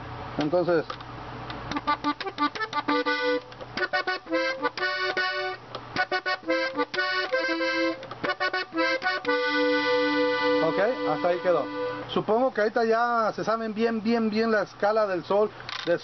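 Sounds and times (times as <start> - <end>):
button accordion notes: 1.6 - 13.0.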